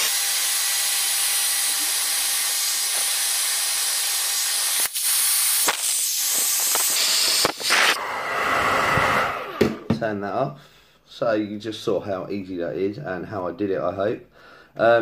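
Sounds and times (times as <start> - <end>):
hair dryer running: 0.0 - 9.9.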